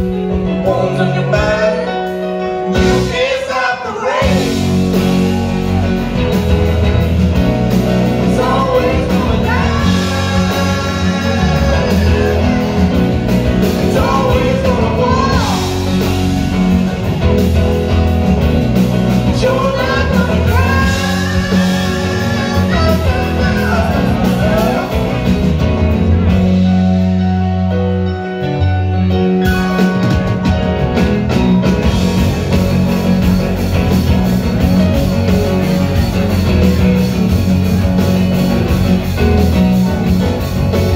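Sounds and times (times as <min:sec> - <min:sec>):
live rock band: 0:00.0 - 0:40.9
lead singer: 0:00.1 - 0:26.7.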